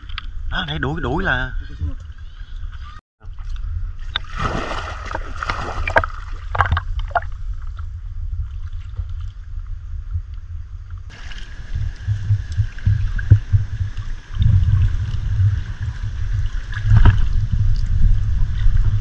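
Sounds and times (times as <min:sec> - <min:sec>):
low rumble: 0:01.5 - 0:19.0
water splashing: 0:03.4 - 0:07.4, 0:11.1 - 0:19.0.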